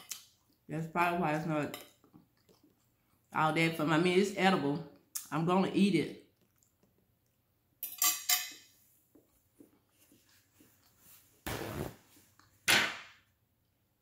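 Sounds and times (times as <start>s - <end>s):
fork clinking on glass dish: 7.8s - 8.7s.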